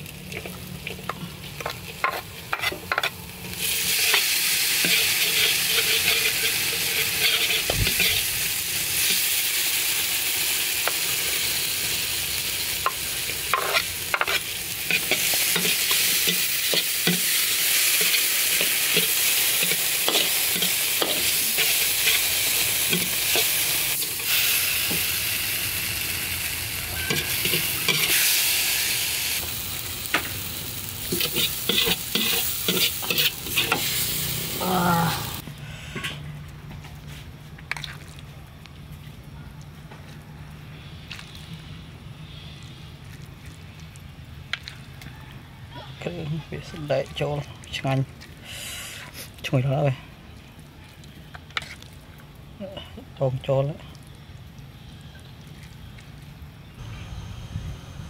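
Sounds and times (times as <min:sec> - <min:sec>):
food sizzling in a wok: 0:00.0 - 0:35.4.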